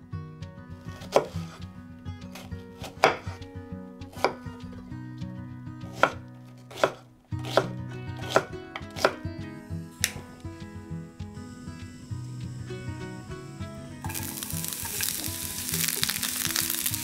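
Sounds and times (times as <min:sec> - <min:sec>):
soft acoustic guitar music: 0:00.0 - 0:17.0
knife chopping on wooden board: 0:01.0 - 0:01.6, 0:02.3 - 0:03.4, 0:04.1 - 0:04.4, 0:05.9 - 0:09.2.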